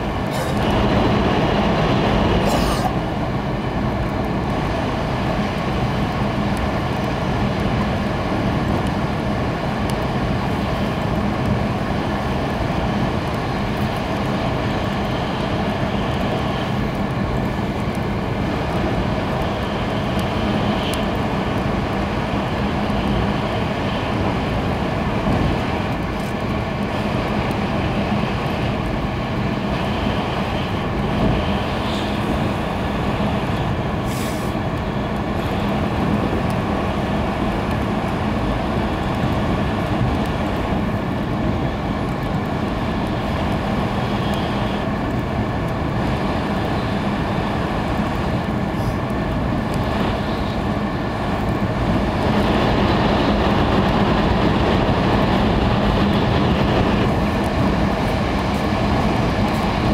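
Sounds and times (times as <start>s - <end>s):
train cabin running noise: 0.0s - 59.9s.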